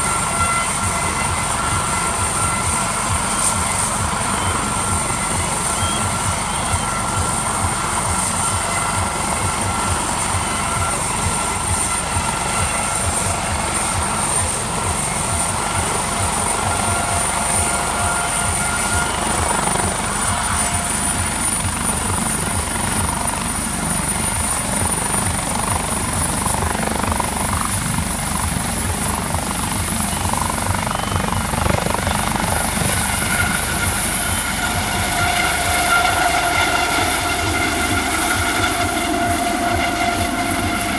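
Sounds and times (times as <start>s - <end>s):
helicopter rotor blades beating: 0.0s - 40.9s
helicopter turbine whine: 0.0s - 40.9s.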